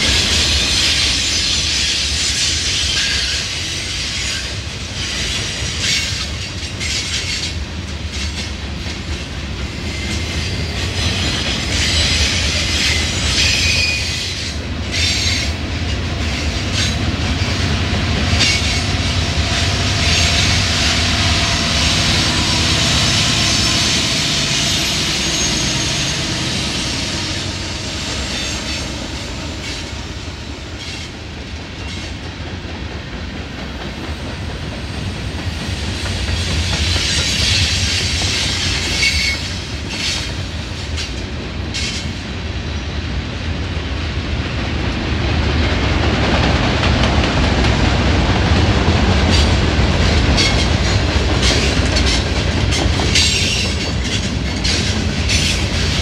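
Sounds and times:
train wheels rumbling on rail: 0:00.0 - 0:56.0
wheels clicking over rail joints: 0:49.2 - 0:56.0.

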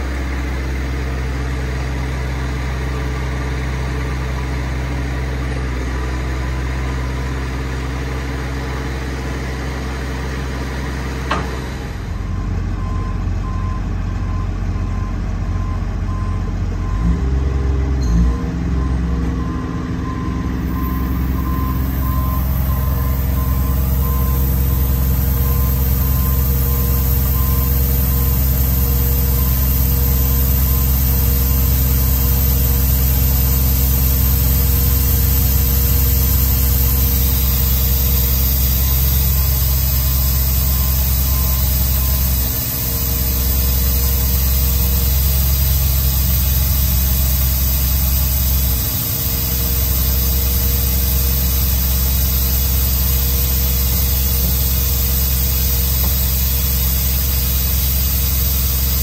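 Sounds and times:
diesel engine running: 0:00.0 - 0:59.0
air compressor hissing: 0:20.6 - 0:59.0.

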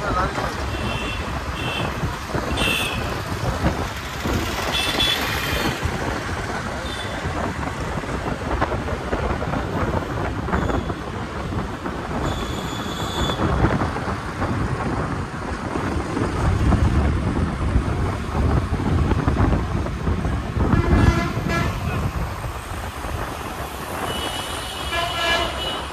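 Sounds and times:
traffic rumble: 0:00.0 - 0:25.9
vehicle horn: 0:20.7 - 0:22.0, 0:24.0 - 0:25.9
car horn toot: 0:24.1 - 0:25.9.

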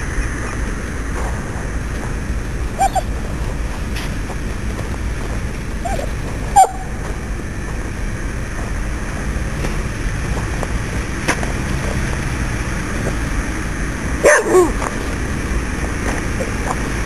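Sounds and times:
low outdoor rumble: 0:00.0 - 0:17.0
dog barking: 0:14.2 - 0:14.8.

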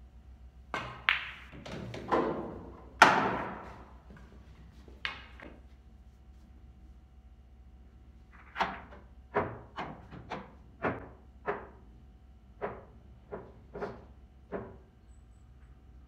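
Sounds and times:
pool balls clicking and knocking: 0:00.6 - 0:05.8, 0:08.2 - 0:15.0
cue striking ball: 0:00.7 - 0:04.0, 0:05.0 - 0:05.5.

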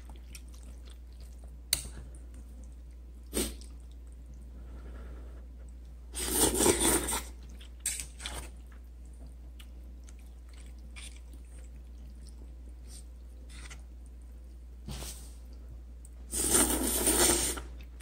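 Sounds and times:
quiet chewing: 0:00.0 - 0:06.0, 0:06.6 - 0:14.6
noodles being slurped: 0:06.1 - 0:08.6, 0:16.3 - 0:17.9.

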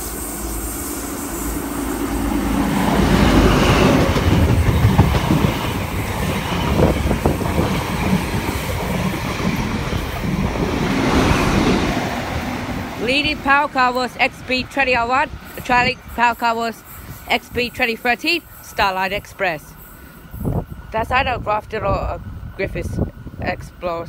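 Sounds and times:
diesel train passing: 0:00.0 - 0:24.0
wheels clattering over rails: 0:03.3 - 0:11.3.

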